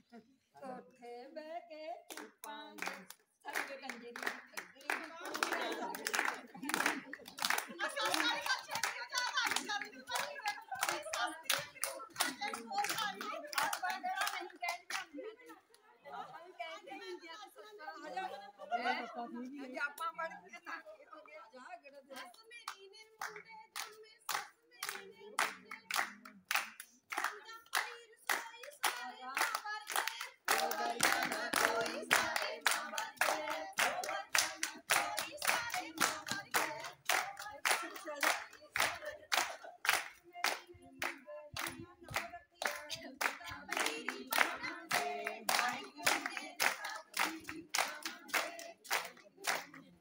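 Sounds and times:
women singing folk song: 0.6s - 6.1s, 7.7s - 15.0s, 27.1s - 50.0s
women clapping in rhythm: 2.0s - 15.3s, 22.1s - 50.0s.

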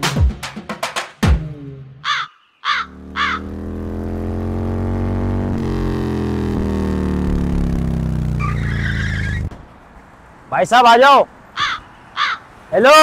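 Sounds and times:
crow cawing: 2.0s - 3.5s, 11.5s - 12.7s
motorcycle engine running: 2.7s - 9.5s.

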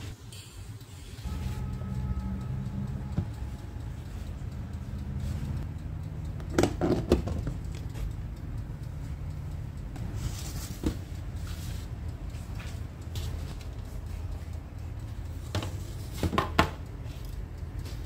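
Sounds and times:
steady low hum: 0.0s - 16.2s.

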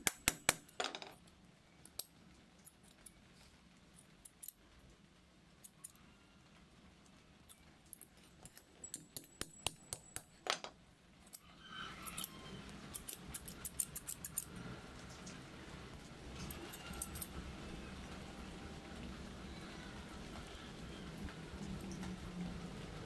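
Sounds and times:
scissors clicking: 12.9s - 14.5s.

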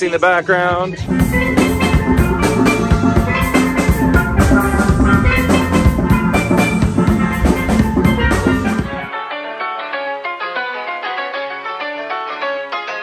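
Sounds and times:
drum kit beat: 1.0s - 9.1s
steel pans playing melody: 1.0s - 9.6s.

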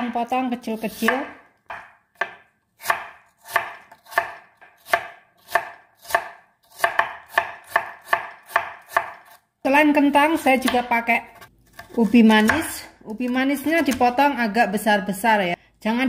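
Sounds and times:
knife chopping on wooden board: 0.9s - 9.4s.

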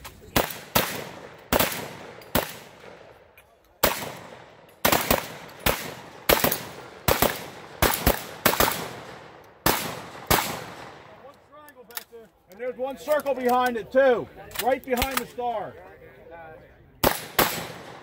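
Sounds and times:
shotgun shots echoing: 0.4s - 3.2s, 3.8s - 11.2s, 17.0s - 18.0s.

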